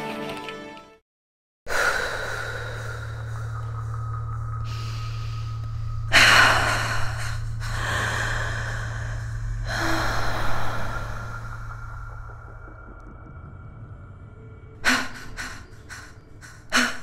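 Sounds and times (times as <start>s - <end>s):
heavy human breathing: 1.7s - 12.5s, 14.8s - 17.0s
steady low drone: 1.7s - 17.0s.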